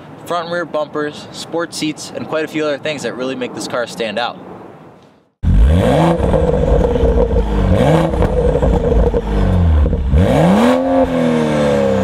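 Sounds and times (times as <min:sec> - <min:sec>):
car engine revving hard: 0:05.4 - 0:12.0.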